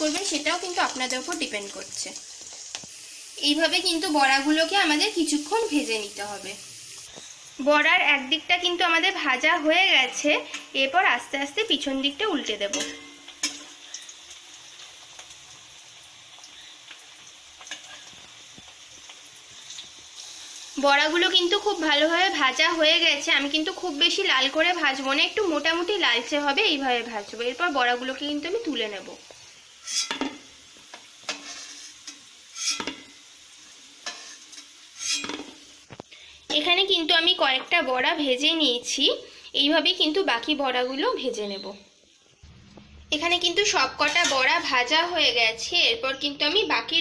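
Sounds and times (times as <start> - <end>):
food sizzling in hot oil: 0.0 - 47.0
utensil scraping pan: 29.8 - 30.4, 31.3 - 33.2, 34.0 - 35.6.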